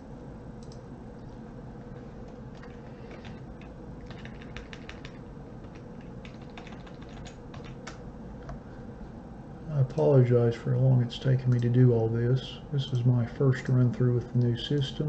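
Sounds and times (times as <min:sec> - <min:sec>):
keyboard keys clicking: 0:04.0 - 0:08.0.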